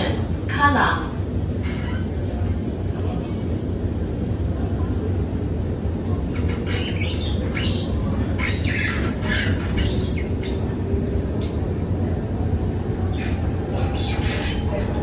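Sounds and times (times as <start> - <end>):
metro car low rumble: 0.0 - 15.0
wheels screeching: 13.1 - 15.0.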